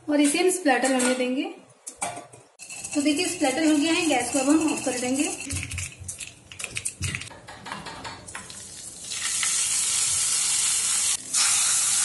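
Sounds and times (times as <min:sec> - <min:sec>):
loud steady sizzle: 0:08.6 - 0:12.0.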